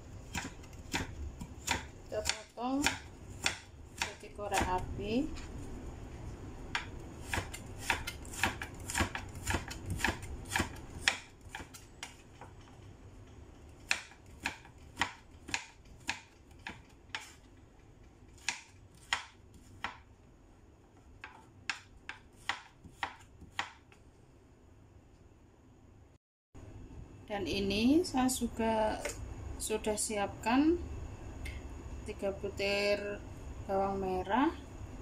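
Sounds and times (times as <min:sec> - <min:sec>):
knife chopping on wooden board: 0:00.3 - 0:04.8, 0:06.7 - 0:12.6, 0:13.8 - 0:17.4, 0:18.4 - 0:20.0, 0:21.2 - 0:23.8.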